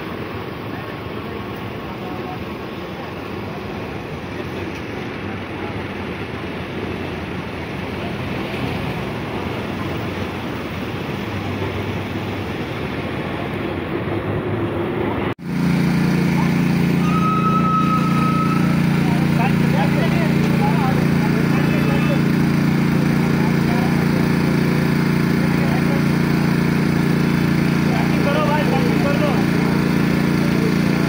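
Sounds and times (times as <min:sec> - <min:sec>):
machinery noise: 0:00.0 - 0:31.0
small engine running: 0:15.4 - 0:31.0.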